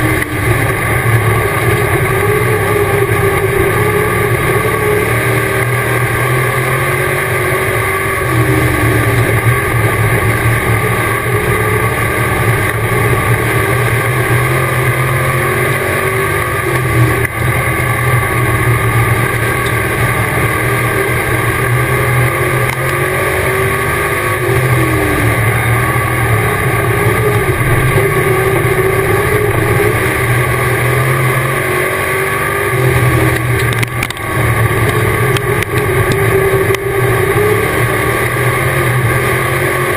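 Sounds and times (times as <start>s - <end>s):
race car engine revving: 0.0s - 39.9s.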